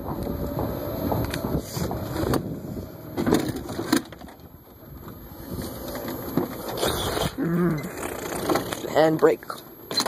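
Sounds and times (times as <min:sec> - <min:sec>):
golf cart rumbling: 0:00.0 - 0:10.0
knocks and rattles: 0:05.9 - 0:09.0.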